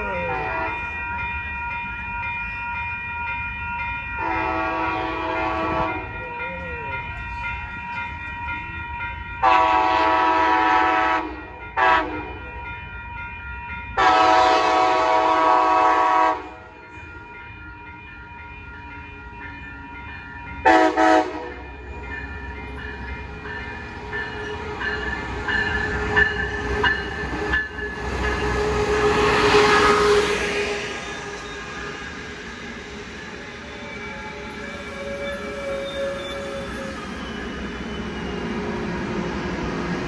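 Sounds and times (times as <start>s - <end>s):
crossing signal bells ringing: 0.0s - 39.6s
train rumble and wheel clatter: 0.0s - 40.0s
train horn blasts: 0.2s - 0.9s, 4.2s - 6.1s, 9.4s - 12.5s, 14.0s - 16.7s, 20.6s - 21.6s, 28.4s - 31.0s.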